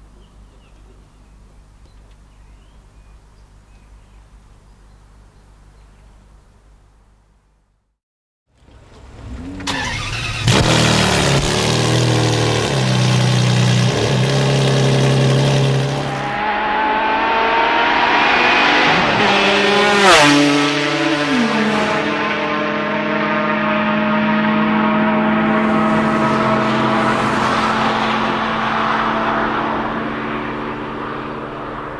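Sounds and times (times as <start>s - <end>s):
car engine revving: 8.6s - 31.9s.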